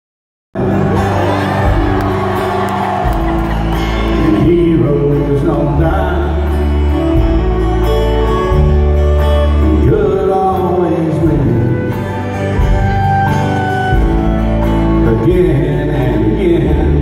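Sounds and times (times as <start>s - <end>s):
fiddle: 0.6s - 16.9s
acoustic guitars: 0.6s - 17.0s
low bass notes: 0.6s - 17.0s
man singing: 4.0s - 7.2s, 9.1s - 12.4s, 14.9s - 17.0s.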